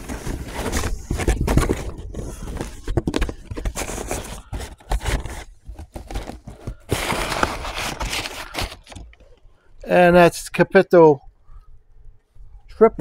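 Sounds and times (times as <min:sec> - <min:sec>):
cardboard rustling and scraping: 0:00.0 - 0:09.4.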